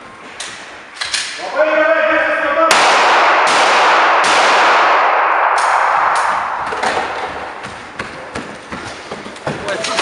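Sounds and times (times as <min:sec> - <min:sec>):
gunshot echoes: 0:02.6 - 0:08.0
handgun shots: 0:02.7 - 0:07.6.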